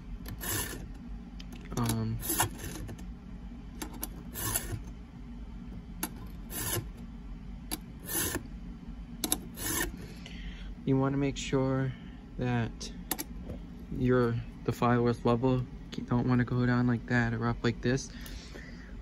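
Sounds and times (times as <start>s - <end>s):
file rasping on chainsaw chain: 6.5s - 6.9s, 9.6s - 9.9s.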